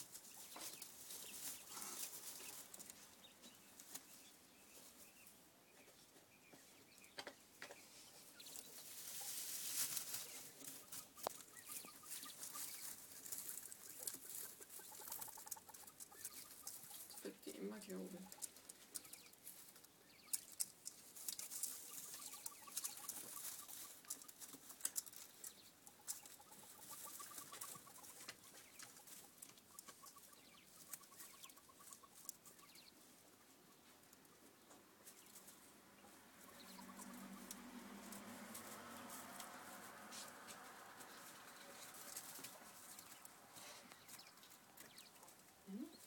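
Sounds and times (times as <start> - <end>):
beaks pecking on a bowl: 6.5 - 33.1, 33.8 - 46.0
quails soft trilling calls: 6.7 - 20.6, 21.5 - 37.8, 41.0 - 46.0.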